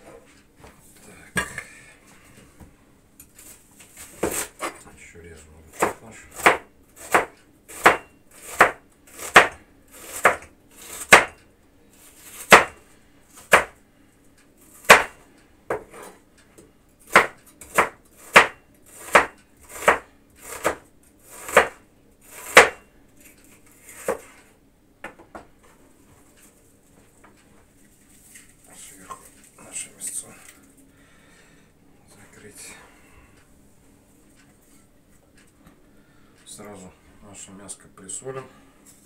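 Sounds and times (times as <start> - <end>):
knife chopping on wooden board: 4.2 - 4.7, 5.7 - 11.4, 12.3 - 12.8, 13.4 - 13.8, 14.8 - 16.2, 17.1 - 22.8, 23.8 - 24.3.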